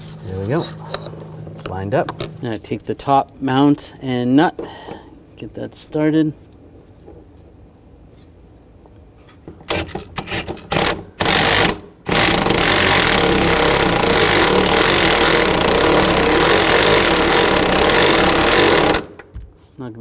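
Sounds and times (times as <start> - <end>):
impact wrench running: 9.6 - 19.3.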